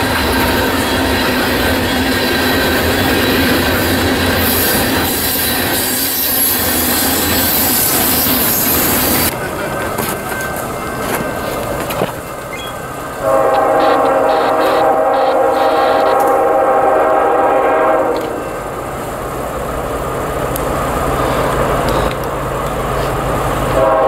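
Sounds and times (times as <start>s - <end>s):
high wheel squeal: 0.0s - 9.3s, 12.5s - 12.9s
train wheels rumbling on rail: 0.0s - 24.0s
locomotive multi-tone horn: 13.2s - 18.5s, 23.8s - 24.0s.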